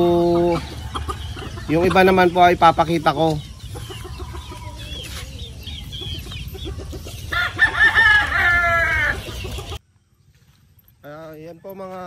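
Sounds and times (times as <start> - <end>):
chickens clucking: 0.0 - 10.2
rooster crowing: 7.3 - 9.8.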